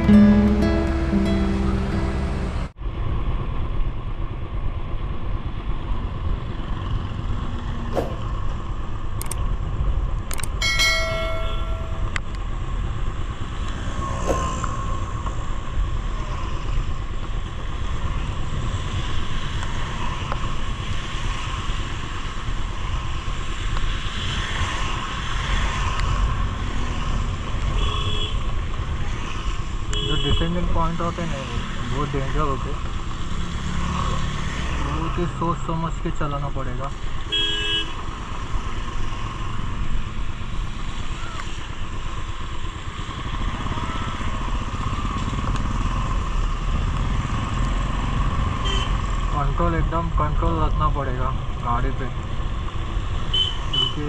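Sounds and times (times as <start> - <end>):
tyres on wet road: 0.0 - 11.1, 12.1 - 54.0
vehicle horn: 27.8 - 28.4, 29.9 - 30.4, 37.3 - 37.9, 48.6 - 49.0.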